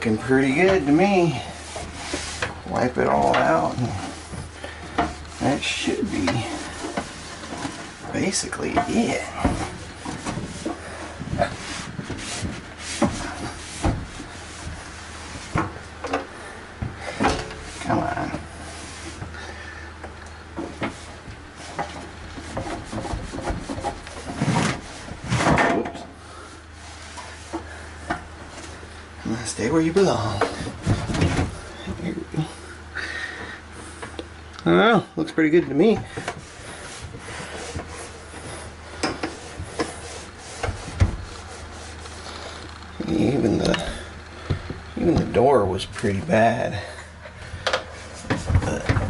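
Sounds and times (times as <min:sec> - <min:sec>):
cloth scrubbing inside microwave: 0:00.0 - 0:32.7, 0:35.2 - 0:49.0.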